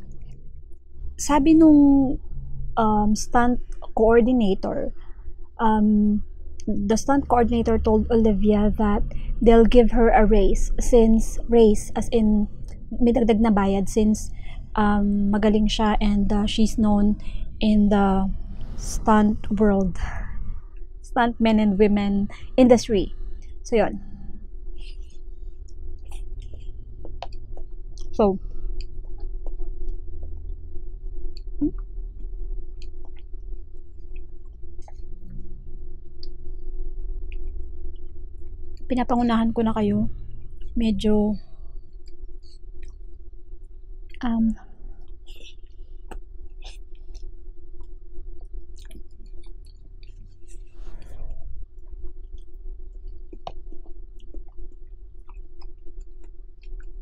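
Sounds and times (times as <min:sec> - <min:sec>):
electric fan humming: 0:05.6 - 0:57.0
wet chewing and mouth clicks: 0:46.1 - 0:50.7, 0:51.8 - 0:57.0.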